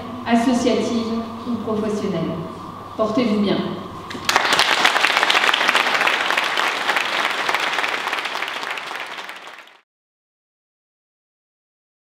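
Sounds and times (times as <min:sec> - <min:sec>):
audience applauding: 0:04.1 - 0:09.8.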